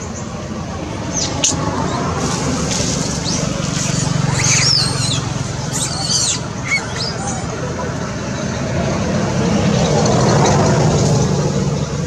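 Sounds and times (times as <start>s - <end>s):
squeaky animal calls: 3.2s - 7.5s.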